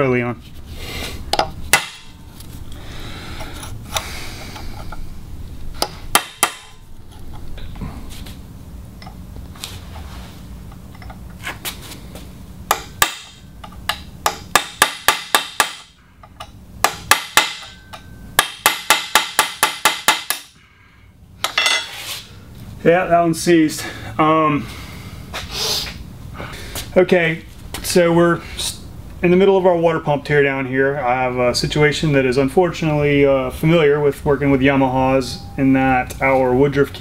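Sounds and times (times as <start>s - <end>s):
hammer striking chisel on metal: 1.3s - 2.1s, 5.8s - 6.8s, 12.7s - 20.5s, 21.4s - 21.9s.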